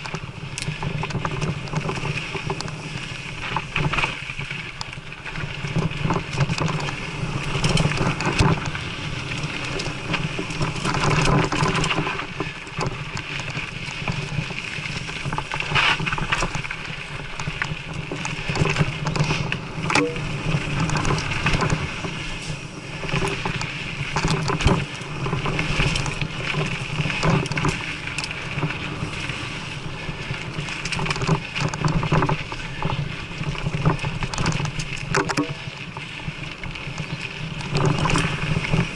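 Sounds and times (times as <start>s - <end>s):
bike rattling over bumps: 0.0s - 38.9s
bike tyres on dirt: 0.0s - 38.9s
wind rumble on microphone: 0.0s - 38.9s.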